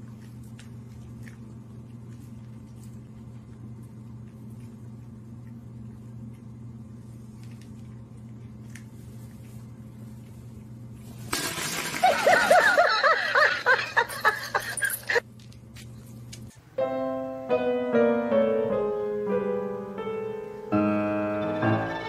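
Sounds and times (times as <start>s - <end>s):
person laughing: 11.9s - 15.2s
piano-like tune: 16.7s - 22.0s.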